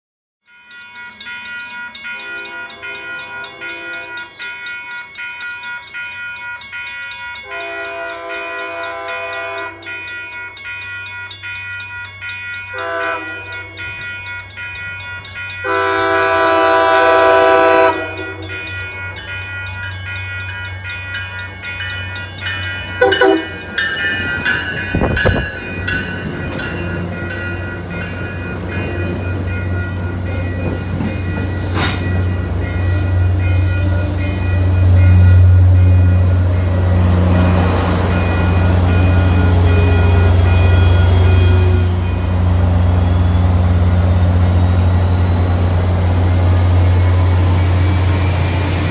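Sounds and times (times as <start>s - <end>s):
crossing bell ringing: 0.4s - 48.9s
train air horn blasts: 7.4s - 10.0s, 12.7s - 13.8s, 15.6s - 18.6s, 23.0s - 23.6s
diesel train rumbling in: 20.8s - 48.9s.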